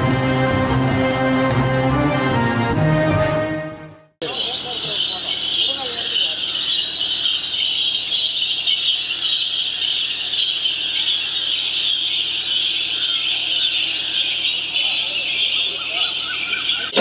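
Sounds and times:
ankle bells jingling: 4.2 - 17.0.

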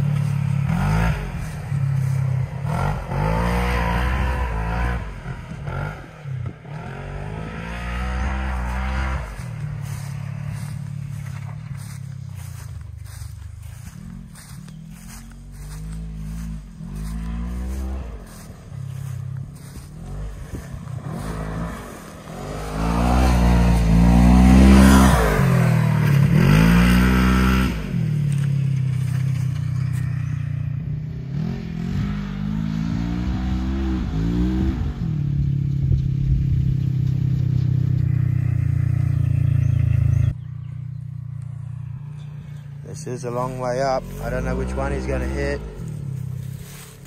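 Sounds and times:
off-road vehicle engine revving: 0.0 - 47.0.

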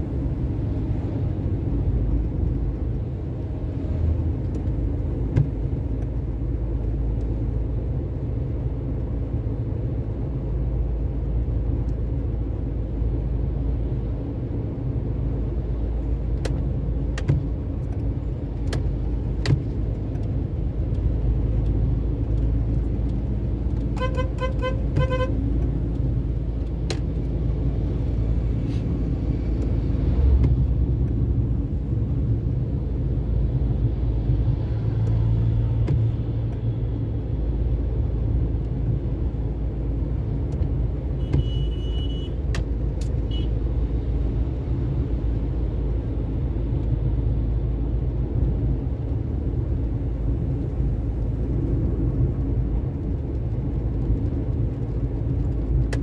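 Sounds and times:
vehicle rumbling along road: 0.0 - 56.0
horn beeps: 41.2 - 42.4.

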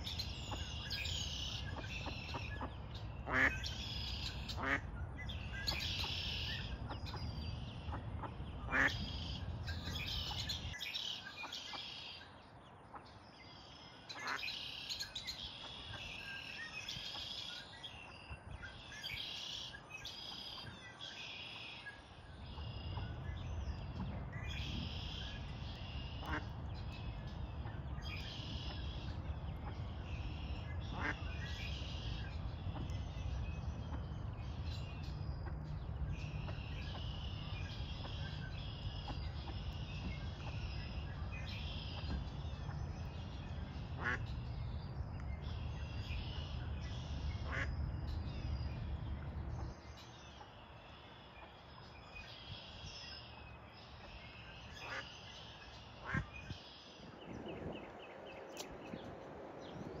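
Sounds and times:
songbirds chattering: 0.0 - 60.0
ducks quacking: 1.7 - 4.9, 7.9 - 9.2, 30.8 - 31.6, 44.0 - 44.3, 47.4 - 47.7, 56.0 - 56.2.

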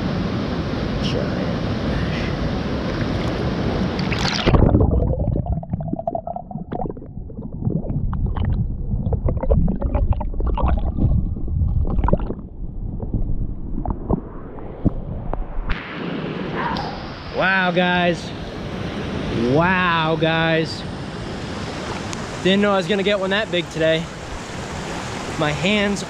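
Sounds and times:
stream water rushing: 0.0 - 5.1, 16.7 - 26.0
water gurgling and bubbling: 2.7 - 15.4.

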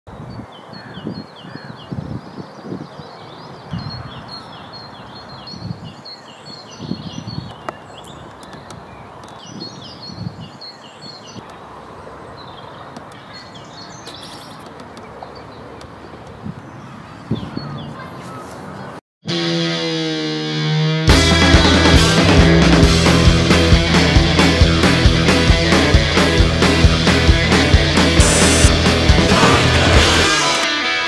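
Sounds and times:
birds chirping: 0.1 - 19.0
outdoor background noise: 0.1 - 19.0.

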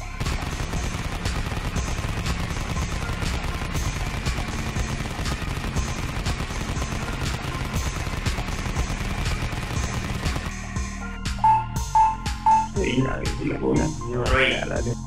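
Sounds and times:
rapid automatic gunfire: 0.0 - 10.9.

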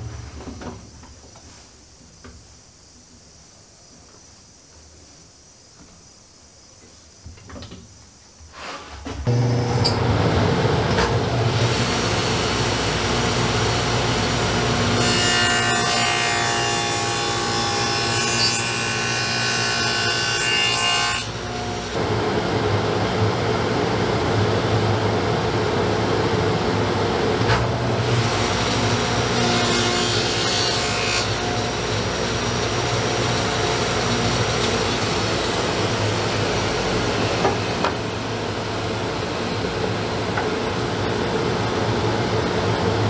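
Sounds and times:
table saw running: 9.3 - 24.1, 27.9 - 38.1
table saw whining cut: 9.3 - 25.2, 25.8 - 38.8.

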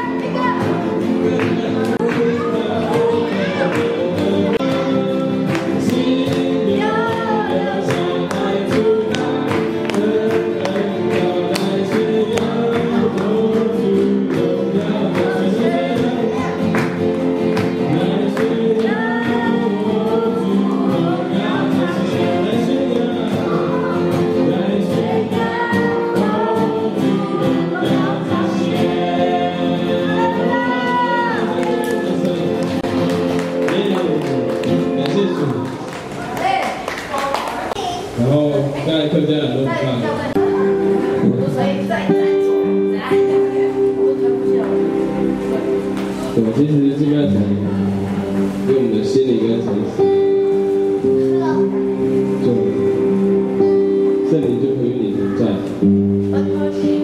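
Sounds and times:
congregation singing: 0.0 - 36.4, 39.0 - 57.0
electric keyboard: 39.3 - 57.0.

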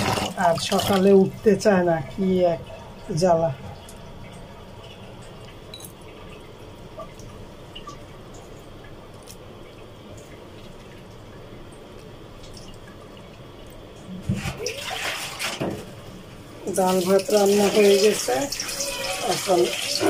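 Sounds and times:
running water in a sink: 0.0 - 20.0
water drips: 0.1 - 15.0.

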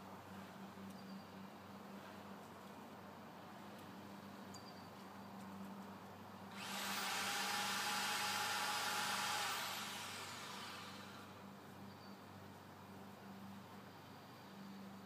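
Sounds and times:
chainsaw revving and cutting: 6.5 - 11.4.

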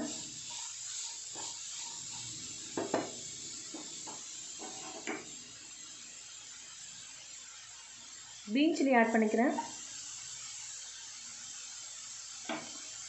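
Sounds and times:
soft sizzle: 0.0 - 13.0
wooden spatula scraping a pan: 0.4 - 2.3, 4.1 - 5.2.

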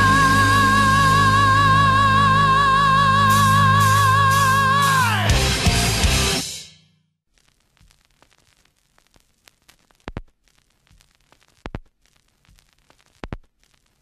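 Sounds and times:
faint crackling static: 7.2 - 14.0.

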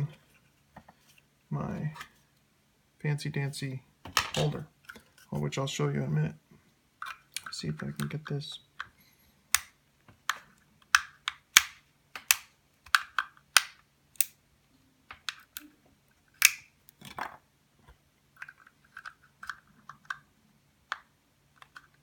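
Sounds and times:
faint steady hum: 0.0 - 22.0
plastic parts clicking and snapping: 7.0 - 14.4, 15.1 - 15.7, 16.3 - 17.4, 18.4 - 22.0.

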